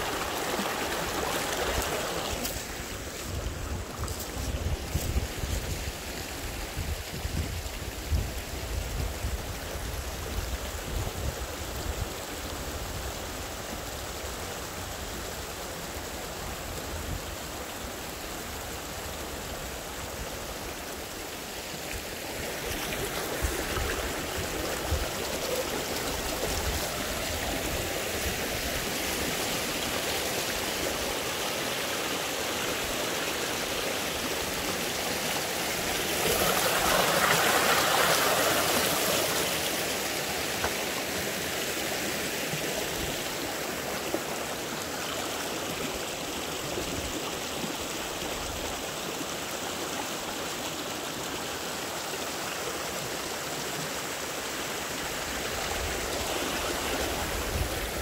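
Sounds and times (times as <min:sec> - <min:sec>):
stream flowing over stones: 0:00.0 - 0:58.0.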